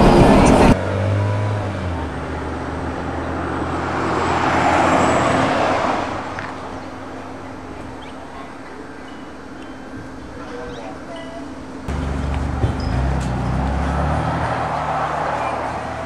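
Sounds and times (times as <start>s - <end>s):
rushing noise: 0.0s - 0.8s
low engine hum: 11.9s - 16.0s.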